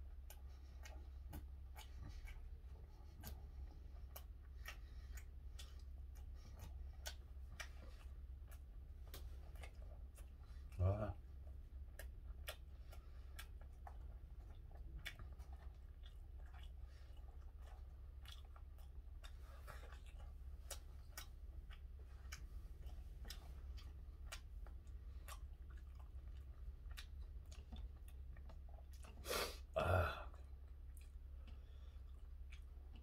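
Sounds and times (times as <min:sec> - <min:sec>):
low steady hum: 0:00.0 - 0:33.0
man chewing with wet mouth clicks: 0:00.0 - 0:33.0
mouth or throat sounds: 0:29.0 - 0:30.6.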